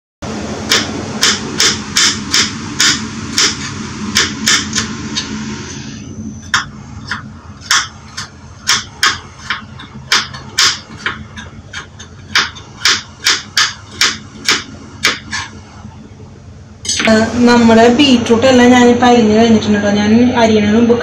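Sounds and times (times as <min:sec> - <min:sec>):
knife chopping on cutting board: 0:06.5 - 0:15.5.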